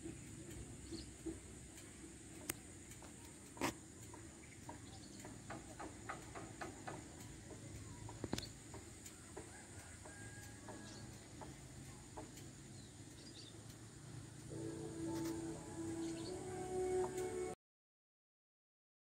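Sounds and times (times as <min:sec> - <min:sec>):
distant bird calls: 0:00.1 - 0:02.0, 0:02.6 - 0:17.5
background music: 0:14.5 - 0:17.6.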